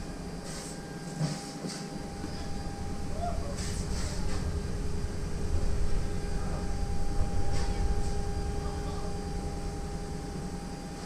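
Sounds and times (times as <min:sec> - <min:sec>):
electrical hum: 0:00.0 - 0:11.0
steady low rumble: 0:02.0 - 0:11.0.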